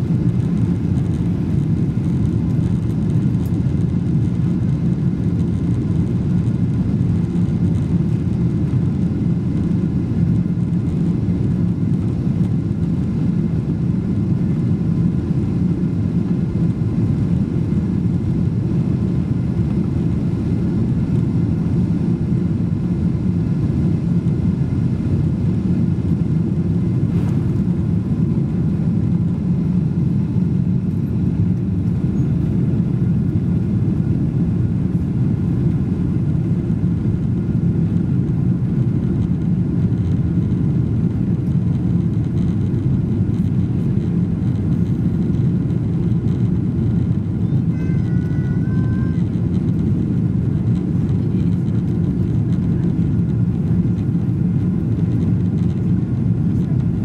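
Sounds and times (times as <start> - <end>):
jet engines rumbling: 0.0 - 57.0
faint whining tones: 37.0 - 55.8.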